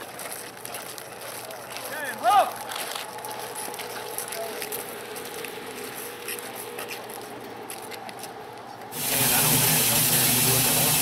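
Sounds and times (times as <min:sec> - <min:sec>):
steam hissing: 0:08.9 - 0:11.0.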